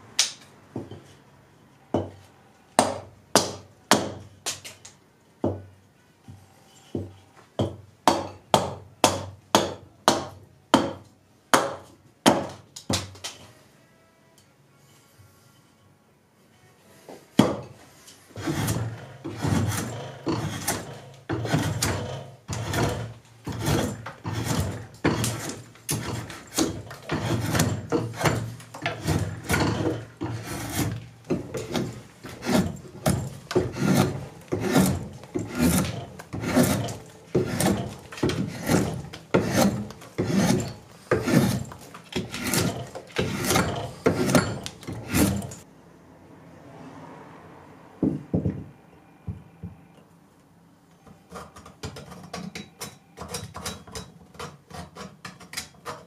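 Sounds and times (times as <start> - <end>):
rasp scraping wood: 18.3 - 45.6
blade chopping into wood: 18.5 - 45.6.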